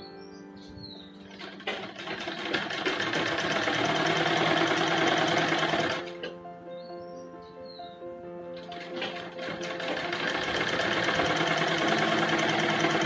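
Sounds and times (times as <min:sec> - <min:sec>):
sewing machine stitching: 0:01.3 - 0:06.3, 0:08.6 - 0:13.0.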